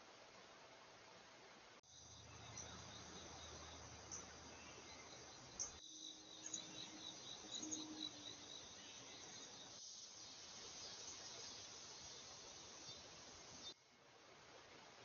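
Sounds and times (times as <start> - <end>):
insect chirping trill: 1.8 - 13.8.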